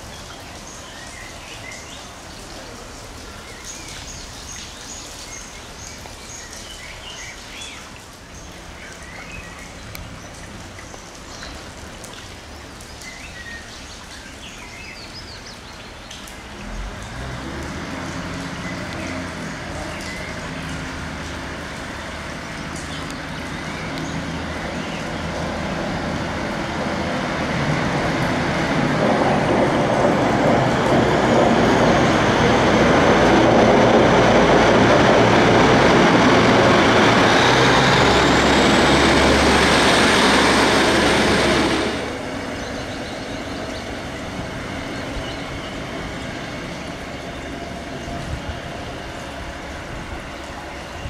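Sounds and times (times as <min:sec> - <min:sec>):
steady rain hiss: 0:00.0 - 0:51.0
diesel train engine hum: 0:17.2 - 0:50.9
birds chirping: 0:42.4 - 0:49.4.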